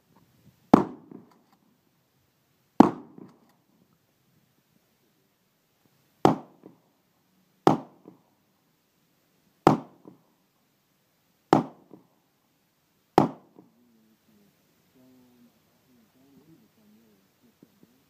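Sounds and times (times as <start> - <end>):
gunshot echo: 0.7 - 1.4, 2.8 - 3.5, 9.7 - 10.2, 11.5 - 12.0, 13.2 - 13.7.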